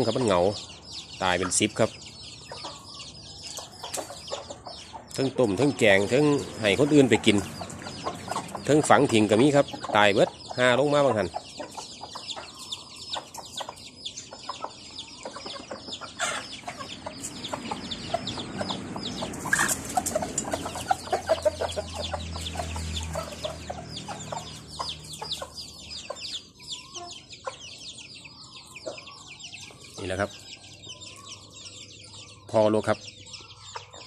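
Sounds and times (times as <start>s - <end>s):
chicks peeping: 0.0s - 34.0s
hen clucking: 0.0s - 34.0s
low rumble and rustling: 17.1s - 25.6s.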